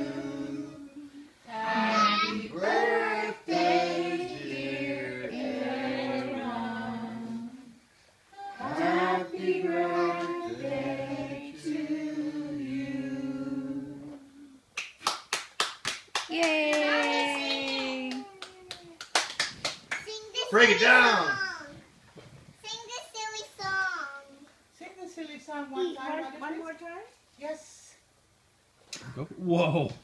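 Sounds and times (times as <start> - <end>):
group singing: 0.0 - 7.8, 8.5 - 14.3
hand clapping: 14.8 - 20.1.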